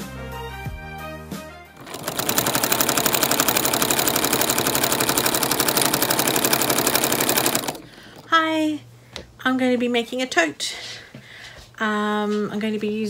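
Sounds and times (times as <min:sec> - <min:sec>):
sewing machine stitching: 0:01.8 - 0:08.3.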